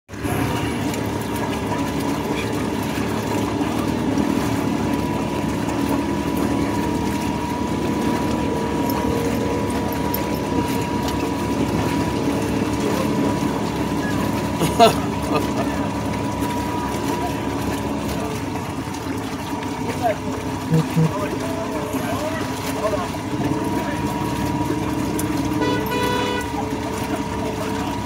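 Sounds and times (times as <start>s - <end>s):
utility vehicle engine running: 0.1s - 28.0s
thin steady whine: 20.7s - 21.3s.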